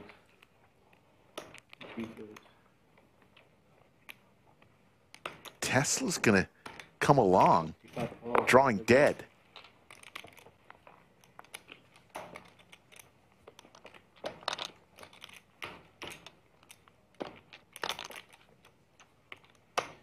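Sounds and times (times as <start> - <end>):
poker chips clicking: 8.5 - 20.0.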